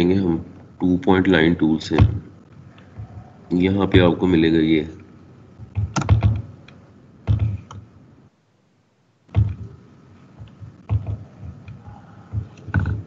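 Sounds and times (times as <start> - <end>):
computer keyboard and mouse clicks: 5.6 - 7.8, 10.4 - 13.0.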